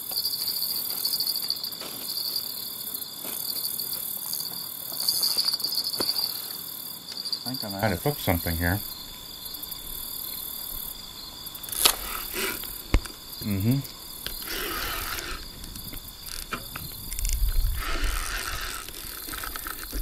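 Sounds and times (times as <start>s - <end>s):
crickets chirping: 0.0s - 20.0s
fishing reel cranking: 14.2s - 15.4s, 16.2s - 20.0s
reel clicks: 14.2s - 20.0s.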